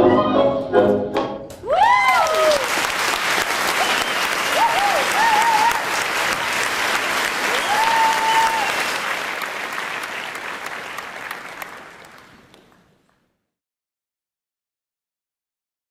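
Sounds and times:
audience cheering: 1.6 - 12.6
audience applauding: 1.6 - 13.2.

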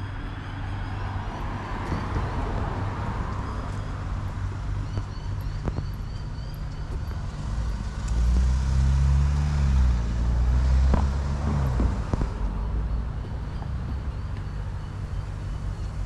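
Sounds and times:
low traffic rumble: 0.0 - 16.0
vehicle engine passing by: 7.1 - 13.2.

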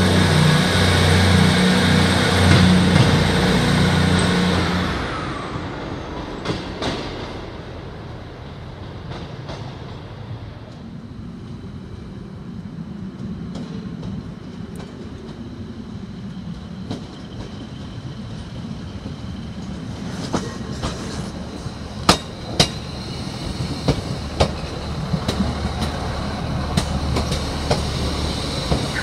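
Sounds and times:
train diesel engine hum: 0.0 - 29.0
train wheels clacking over rail joints: 1.9 - 4.7, 16.8 - 29.0.

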